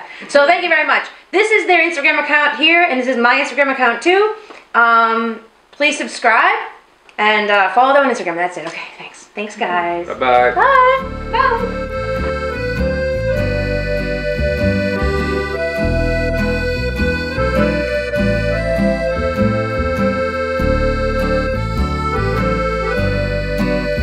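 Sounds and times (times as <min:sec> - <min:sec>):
instrumental background music: 0:10.0 - 0:24.0.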